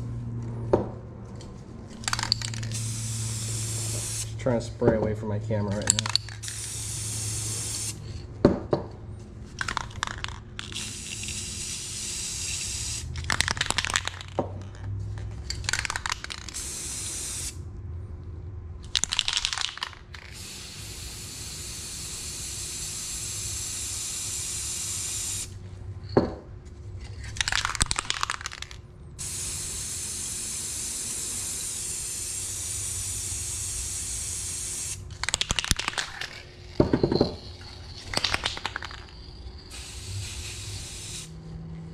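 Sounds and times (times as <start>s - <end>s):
aerosol spray can hissing: 2.1s - 4.4s, 6.4s - 8.0s, 10.6s - 13.1s, 16.4s - 17.6s, 20.3s - 25.5s, 29.2s - 35.0s, 39.7s - 41.3s
sharp clattering: 35.1s - 39.7s.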